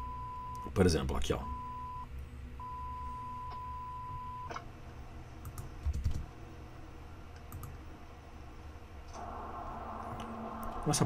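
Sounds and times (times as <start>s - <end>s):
low hum: 6.4s - 11.0s
click: 7.4s - 7.8s
steady high-pitched tone: 9.2s - 11.0s.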